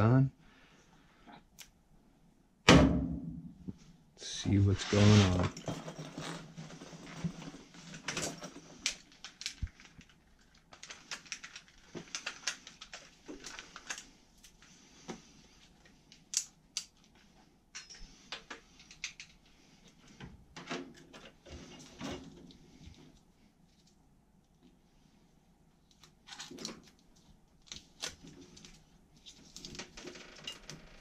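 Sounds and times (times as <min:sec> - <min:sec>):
tools being handled and set down: 0:05.0 - 0:08.9.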